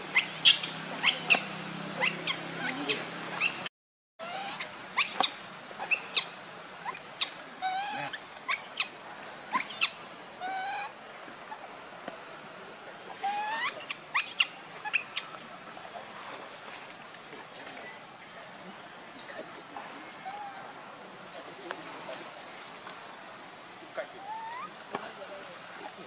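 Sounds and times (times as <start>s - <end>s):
short chirping calls: 0.1s - 8.9s, 9.5s - 10.9s, 13.3s - 15.4s.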